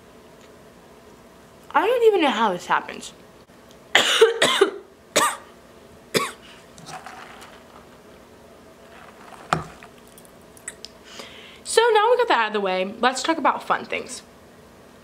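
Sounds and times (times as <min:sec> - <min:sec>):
woman coughing: 0:03.9 - 0:05.5, 0:06.1 - 0:06.4.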